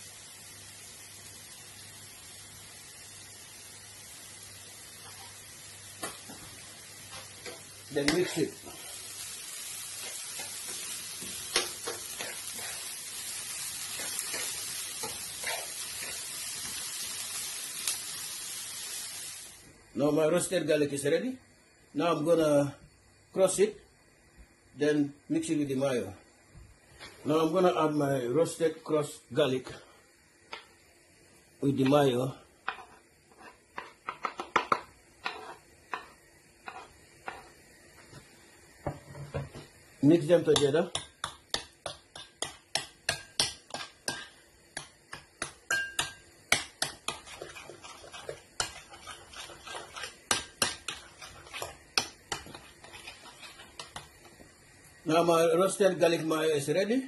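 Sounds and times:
vegetables sizzling in oil: 0.0s - 57.0s
utensil tapping against a bowl: 40.6s - 47.4s.

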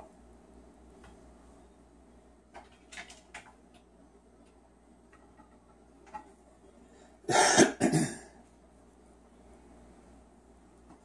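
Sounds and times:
harsh throat-clearing coughs: 7.3s - 8.4s.

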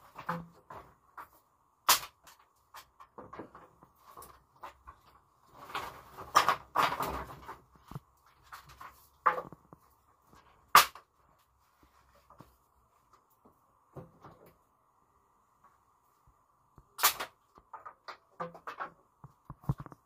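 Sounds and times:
brushwood rustling: 0.0s - 14.6s.

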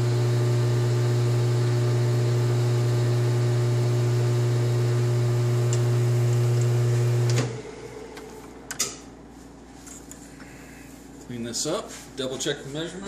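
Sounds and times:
metal lathe humming: 0.0s - 8.2s.

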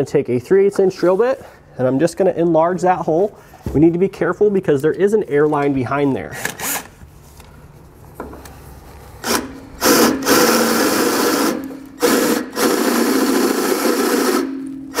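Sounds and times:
cordless drill drilling metal: 9.2s - 15.0s.

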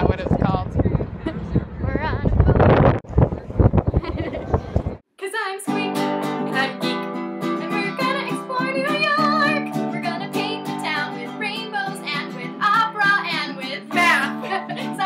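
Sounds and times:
woman singing: 5.2s - 15.0s
ukulele strumming chords: 5.7s - 15.0s.

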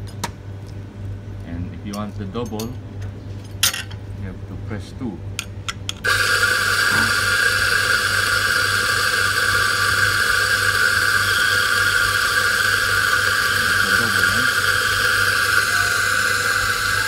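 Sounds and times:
coffee grinder motor grinding: 6.0s - 17.0s.

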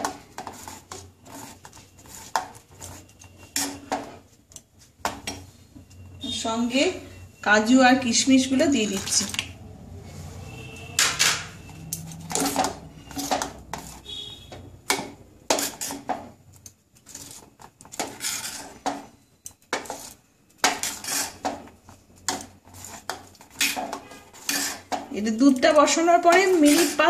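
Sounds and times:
spoon scraping a saucepan: 0.0s - 4.2s, 11.0s - 16.4s, 17.0s - 27.0s.

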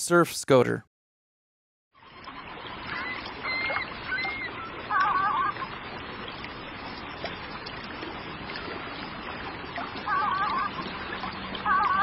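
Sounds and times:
water noise: 2.0s - 12.0s
duck warbling call: 2.9s - 5.6s, 10.1s - 10.8s, 11.6s - 12.0s
duck whistling calls: 2.9s - 5.6s.

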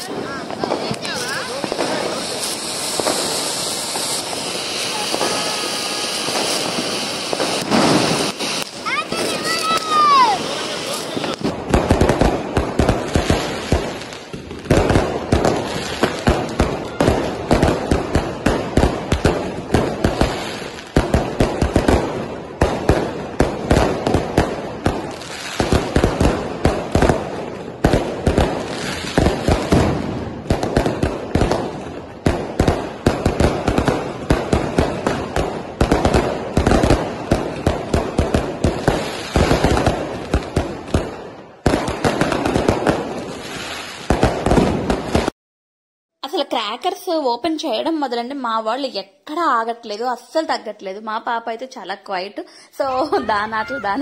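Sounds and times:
fireworks bangs and crackles: 0.0s - 45.3s, 46.3s - 54.0s.

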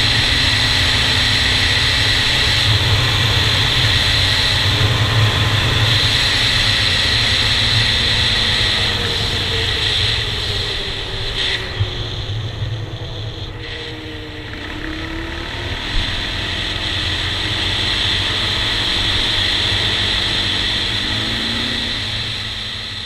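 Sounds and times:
wind rush on microphone: 0.0s - 14.6s
quad engine running: 0.0s - 23.0s.

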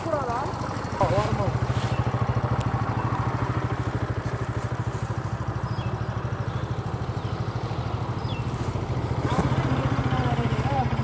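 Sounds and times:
motorcycle engine at low revs: 0.0s - 11.0s.

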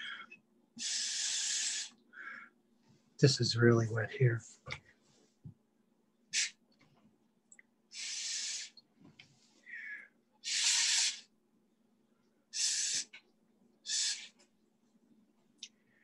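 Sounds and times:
mouth blowing short puffs: 10.5s - 11.2s.

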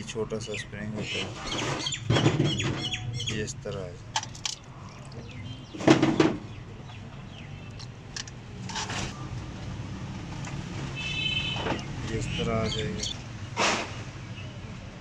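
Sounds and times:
bird calls: 0.4s - 3.8s, 11.0s - 13.3s
high bird chirp: 0.5s - 3.4s, 11.0s - 13.2s.

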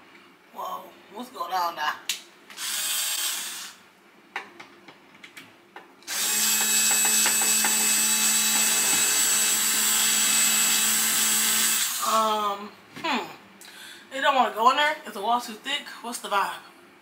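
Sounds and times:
electric screwdriver running: 2.6s - 3.8s, 6.1s - 12.1s.

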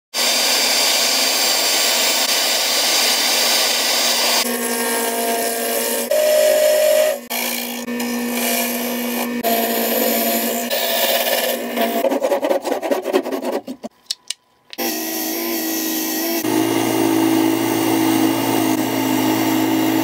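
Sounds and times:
dust collection hose rushing: 0.1s - 4.6s
wood lathe motor hum: 0.2s - 12.6s, 14.8s - 20.0s
chisel shaving wood: 0.2s - 13.9s, 14.8s - 20.0s.

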